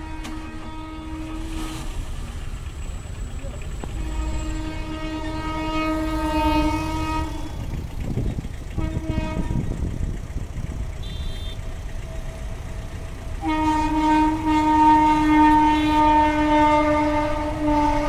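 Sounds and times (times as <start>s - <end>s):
train air horn blast: 0.0s - 7.8s, 8.7s - 10.0s, 11.0s - 11.8s, 13.3s - 18.0s
low rumble of passing train: 0.0s - 18.0s.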